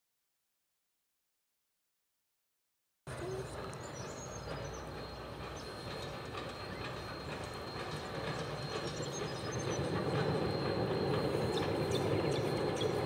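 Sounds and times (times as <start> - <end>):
steam train rumbling on rails: 3.1 - 13.0.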